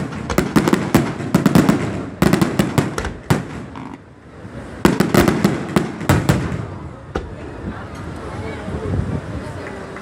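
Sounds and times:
fireworks bangs and pops: 0.0 - 4.1, 4.8 - 7.4.

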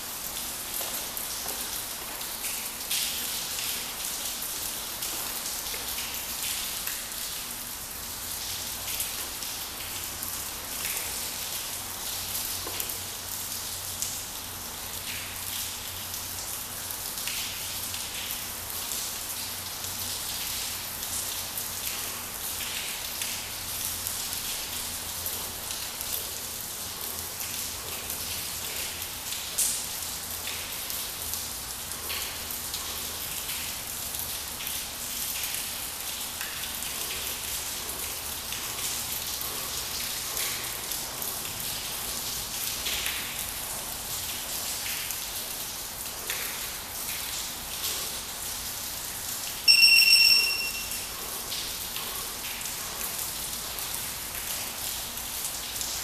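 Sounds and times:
rain pattering on ground: 0.0 - 56.0
high electronic beep: 49.7 - 51.0.

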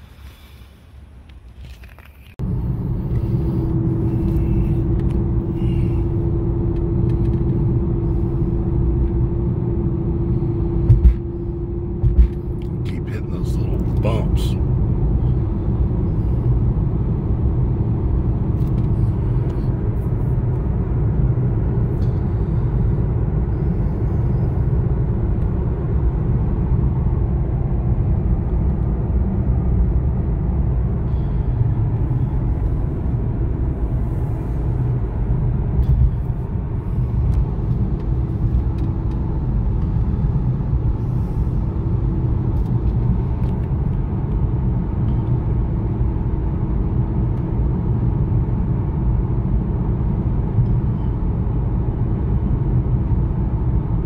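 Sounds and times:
tyre and road noise: 0.0 - 52.9
car engine drone: 0.0 - 54.0.

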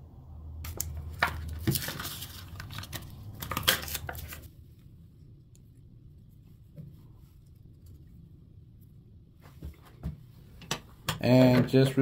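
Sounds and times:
plastic crinkling and cracking: 0.7 - 4.5.

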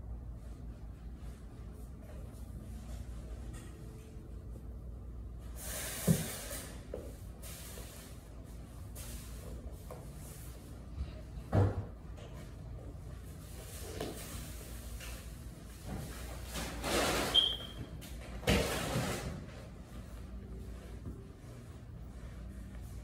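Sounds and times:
low steady hum: 0.0 - 5.5, 19.3 - 23.0.

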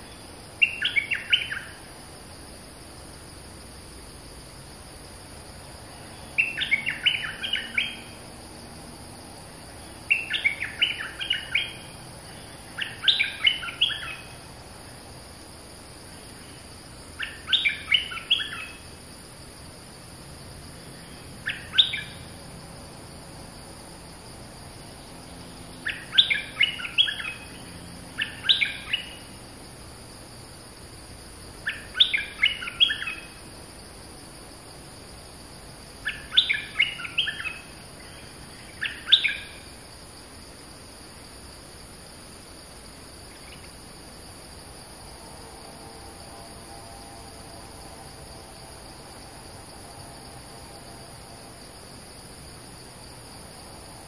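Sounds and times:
bird chirping song: 0.0 - 1.8, 6.1 - 8.2, 9.8 - 14.4, 16.4 - 18.9, 20.9 - 22.4, 25.0 - 29.3, 31.6 - 33.4, 36.0 - 39.7
high insect drone: 0.0 - 54.0.

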